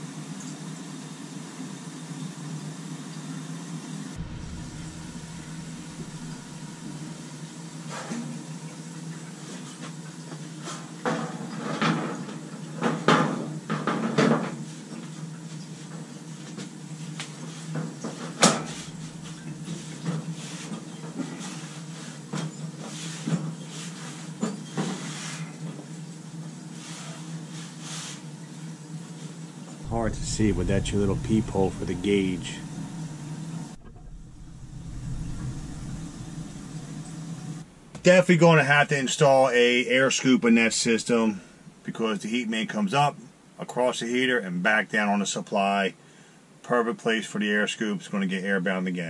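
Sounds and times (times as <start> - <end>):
steady low hum: 3.9 - 8.8, 17.2 - 22.4, 29.8 - 43.6.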